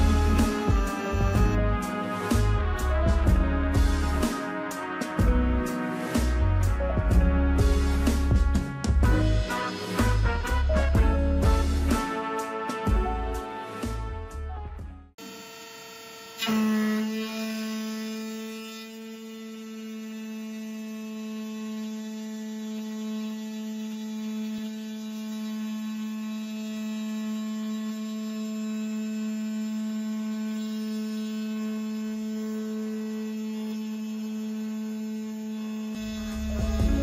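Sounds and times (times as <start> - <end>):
spindle hum cutting metal: 0.0 - 2.9, 15.2 - 37.0.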